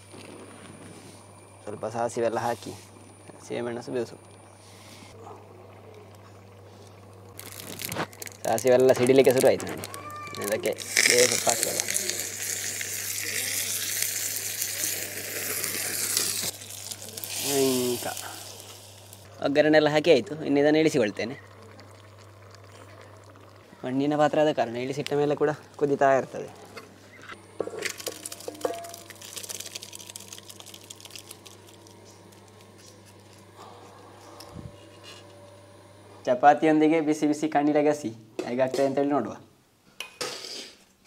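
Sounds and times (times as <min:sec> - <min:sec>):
faint steady hum: 0:00.0 - 0:40.0
seeds sizzling in hot oil: 0:07.3 - 0:26.0, 0:27.4 - 0:33.6.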